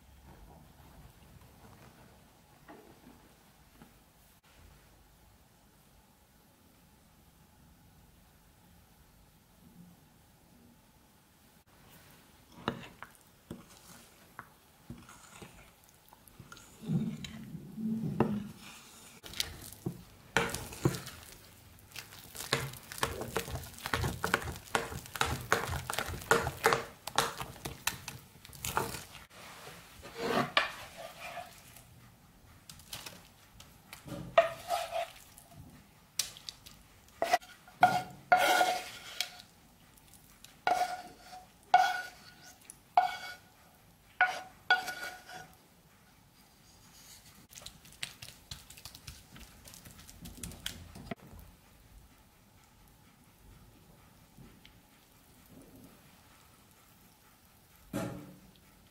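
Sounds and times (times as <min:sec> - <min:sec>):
spoon scraping ceramic bowl: 0:14.9 - 0:15.7, 0:30.0 - 0:31.8, 0:34.4 - 0:35.3, 0:37.2 - 0:39.5, 0:40.7 - 0:43.5, 0:44.2 - 0:45.6
spoon clanking on pan: 0:44.2 - 0:45.6.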